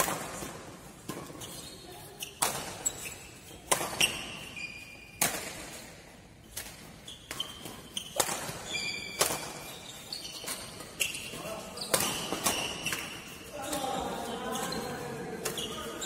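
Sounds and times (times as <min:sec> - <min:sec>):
sneakers squeaking on court: 0:00.9 - 0:05.6, 0:06.6 - 0:16.0
rackets striking shuttlecock: 0:02.2 - 0:04.5, 0:05.2 - 0:11.2, 0:11.9 - 0:13.8.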